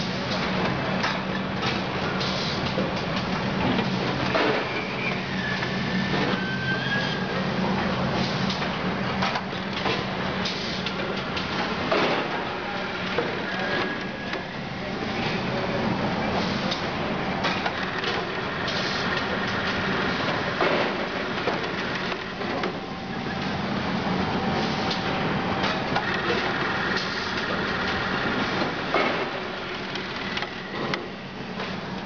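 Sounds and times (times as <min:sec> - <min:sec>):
machine clacks and knocks: 0:20.5 - 0:22.8, 0:24.9 - 0:31.7.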